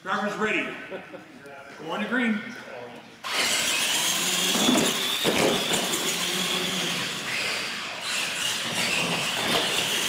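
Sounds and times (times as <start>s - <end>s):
electric motors whining: 3.2s - 10.0s.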